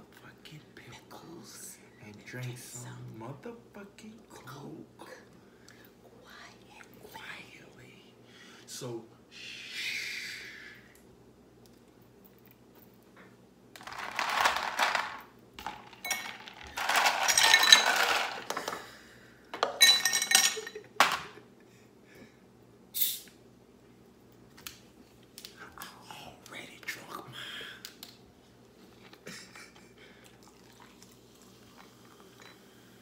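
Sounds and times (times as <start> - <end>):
ice cubes clinking in glasses: 13.8 - 18.8, 19.6 - 20.8
bottle cap opening hiss: 22.9 - 23.4.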